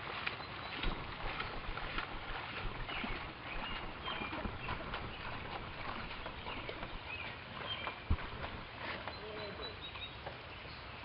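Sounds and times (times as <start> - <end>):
paddles splashing in water: 0.0 - 11.0
water lapping along hull: 0.0 - 11.0
bird chirps: 2.8 - 8.2, 9.1 - 10.9.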